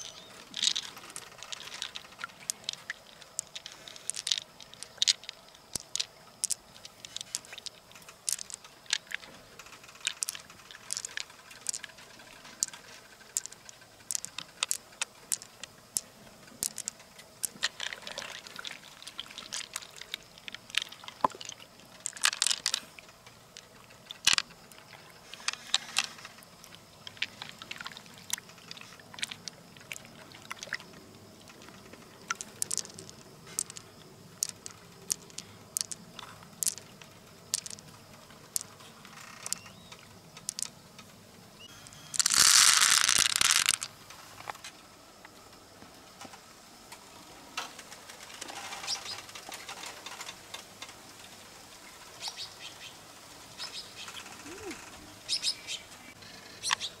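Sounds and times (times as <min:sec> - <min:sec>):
pearls clicking against shell: 0:00.0 - 0:40.8, 0:41.8 - 0:44.6, 0:53.7 - 0:55.5.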